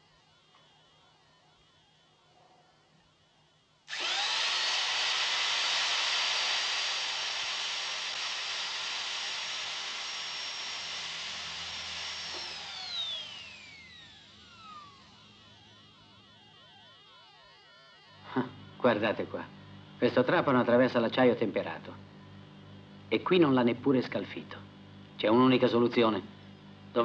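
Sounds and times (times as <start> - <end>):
electric drill whining: 0.0 - 19.5.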